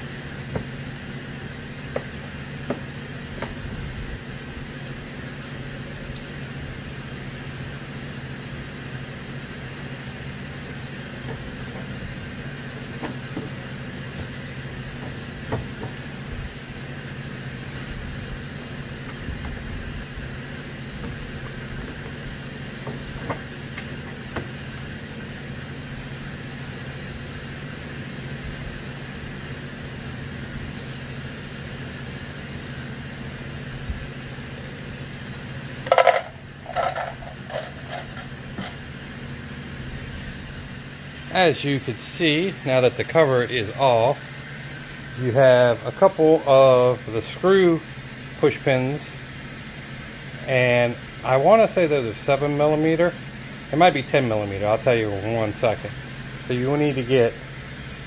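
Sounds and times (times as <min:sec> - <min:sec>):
low background hum: 0:00.0 - 0:58.0.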